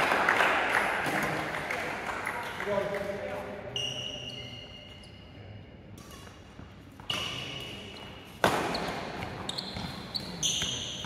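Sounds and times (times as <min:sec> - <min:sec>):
shoes squeaking on court floor: 0:03.7 - 0:11.0
racket hitting shuttlecock: 0:06.0 - 0:11.0.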